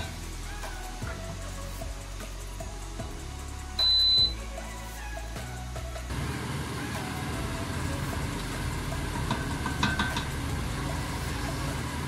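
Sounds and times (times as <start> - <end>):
steady hum: 0.0 - 12.0
spoon knocking on pot: 9.2 - 10.4.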